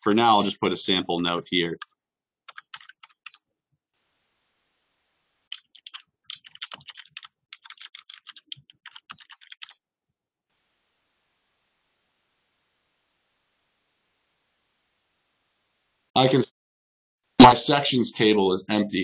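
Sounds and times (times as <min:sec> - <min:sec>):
typing on a computer keyboard: 0:02.5 - 0:03.4, 0:05.5 - 0:09.8.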